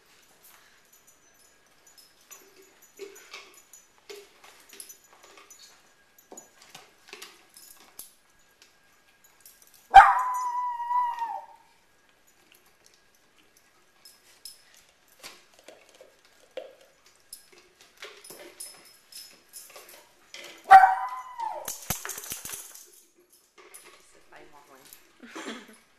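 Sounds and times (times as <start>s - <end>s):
dog whining yelp: 9.9s - 11.8s, 20.6s - 22.0s
faint clicks and scrapes: 12.1s - 25.0s
dogs licking plastic jars: 12.1s - 25.8s.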